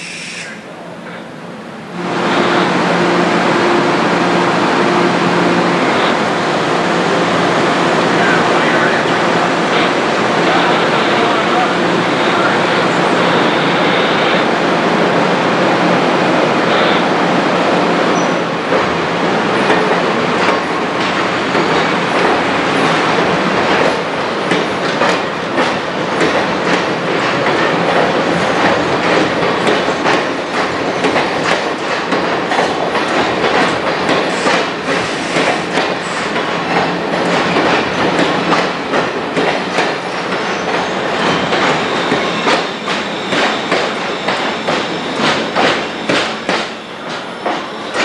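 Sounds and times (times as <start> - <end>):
train rumble: 0.0 - 48.0
train wheels clicking over rail joints: 18.2 - 48.0.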